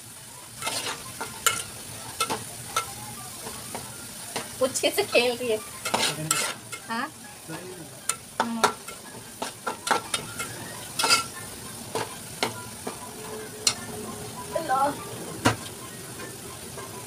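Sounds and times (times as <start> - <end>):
onions sizzling in hot oil: 0.0 - 17.0
metal spatula scraping pot: 0.6 - 3.8, 5.2 - 7.1, 8.0 - 12.5.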